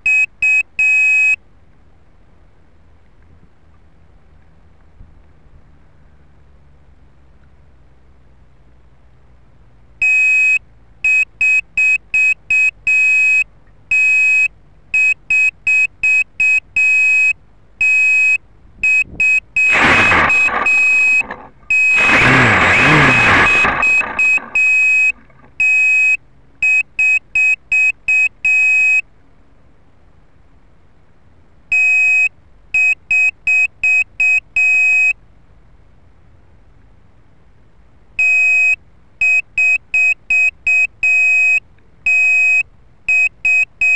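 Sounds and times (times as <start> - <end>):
piezo buzzer beeping: 19.0 - 26.1.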